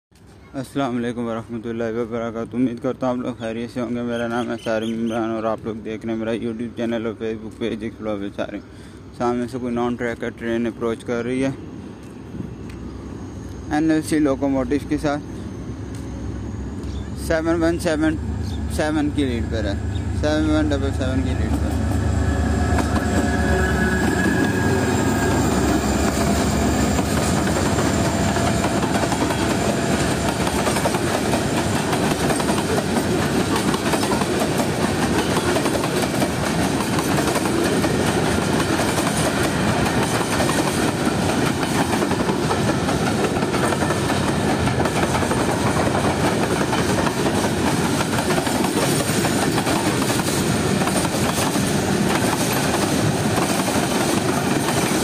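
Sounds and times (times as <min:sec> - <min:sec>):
diesel locomotive engine: 0:00.2 - 0:55.0
train wheels clattering on rails: 0:24.0 - 0:55.0.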